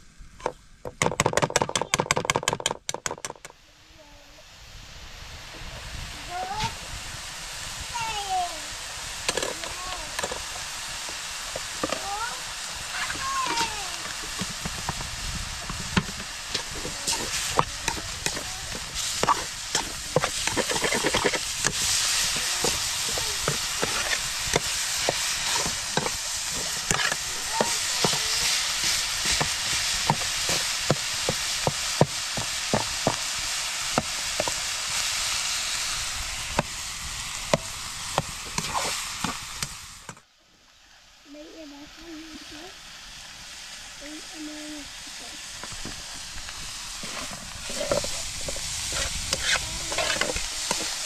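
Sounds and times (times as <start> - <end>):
food sizzling in frying pan: 4.1 - 40.1, 41.0 - 51.0
utensil scraping pan: 15.6 - 33.2, 37.5 - 39.7, 47.0 - 51.0.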